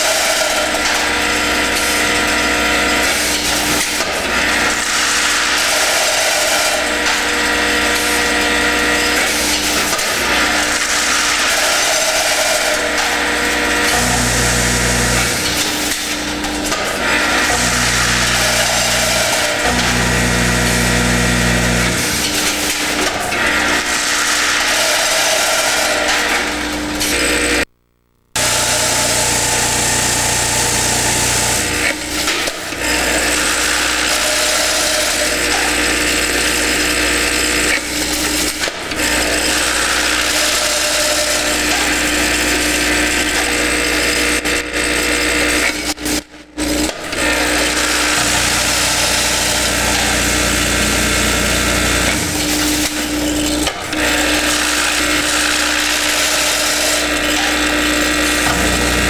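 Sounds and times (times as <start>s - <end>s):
vibratory feeder humming: 6.8s - 23.0s, 25.8s - 31.8s, 47.2s - 59.0s.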